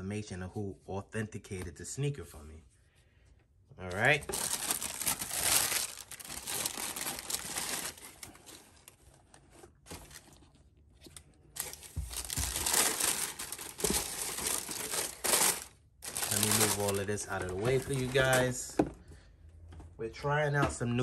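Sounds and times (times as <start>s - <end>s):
tissue paper rustling: 3.9s - 10.6s, 11.6s - 18.6s.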